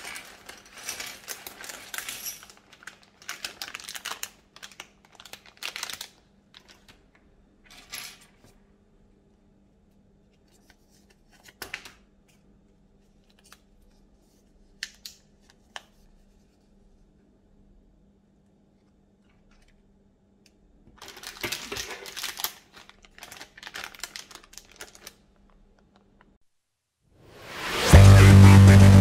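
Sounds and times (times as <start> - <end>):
plastic bag crinkling: 0.0 - 7.1, 21.0 - 26.2.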